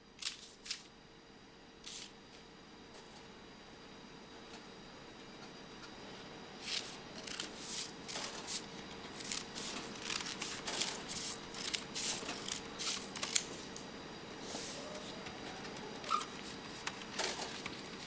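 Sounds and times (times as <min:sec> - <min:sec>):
scissors snipping paper: 0:06.6 - 0:13.6.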